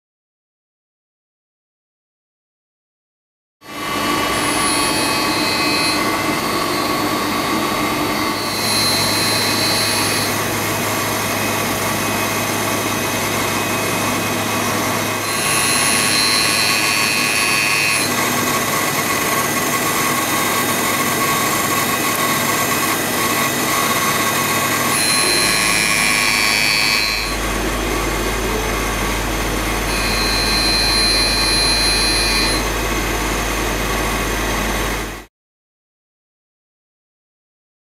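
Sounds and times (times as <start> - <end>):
grinder running: 3.7 - 35.3
high-pitched grinding hiss: 3.8 - 32.9.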